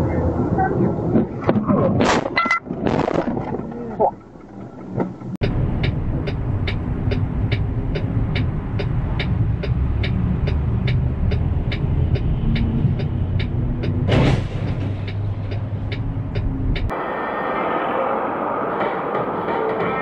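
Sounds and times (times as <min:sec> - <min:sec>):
regular ticking: 0:03.4 - 0:16.9.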